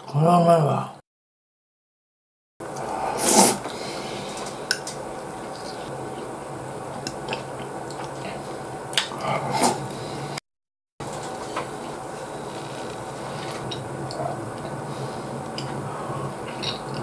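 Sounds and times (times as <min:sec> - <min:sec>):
low room hum: 0:02.6 - 0:10.4, 0:11.0 - 0:17.0
person eating noisily: 0:02.7 - 0:10.4, 0:11.3 - 0:17.0.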